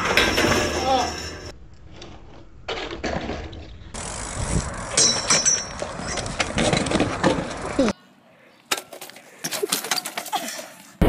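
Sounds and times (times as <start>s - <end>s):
bike tyres on pavement: 0.0s - 8.0s
bike clicks and knocks: 4.8s - 7.8s, 8.7s - 10.5s.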